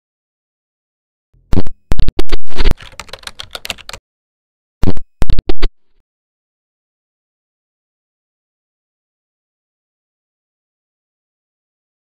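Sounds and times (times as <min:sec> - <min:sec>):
digital crackle: 0:01.6 - 0:03.2.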